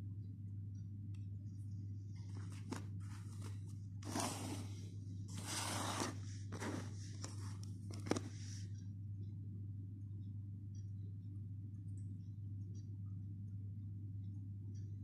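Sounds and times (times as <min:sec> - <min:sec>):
steady low hum: 0:00.0 - 0:15.0
packaging scraping and rustling: 0:02.6 - 0:08.3.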